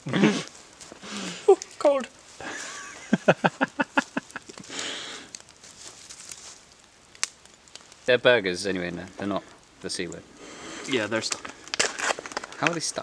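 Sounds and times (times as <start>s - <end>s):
person laughing: 0.1s - 0.5s, 2.4s - 4.7s.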